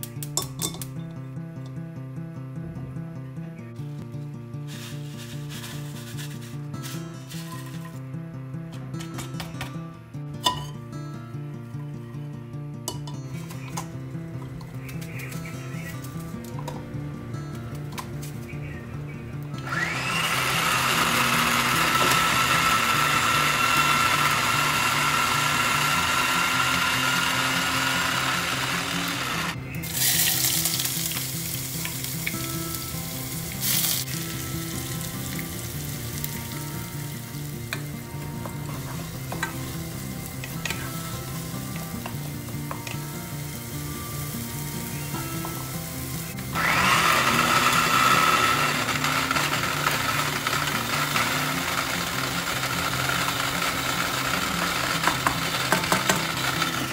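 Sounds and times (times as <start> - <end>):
food processor running: 19.6 - 29.6, 46.5 - 56.9
onion sizzling in oil: 29.8 - 38.1, 38.7 - 49.2.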